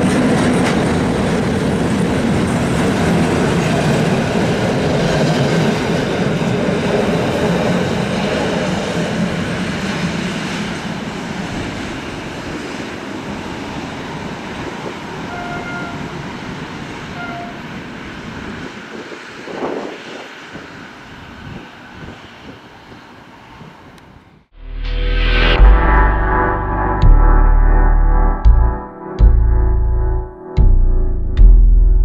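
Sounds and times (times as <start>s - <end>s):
train engines and wheels rumbling: 0.0s - 24.5s.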